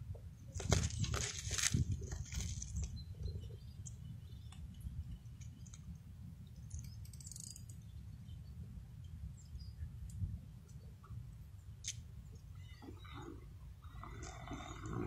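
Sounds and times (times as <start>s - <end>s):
small clicks: 6.6s - 7.8s.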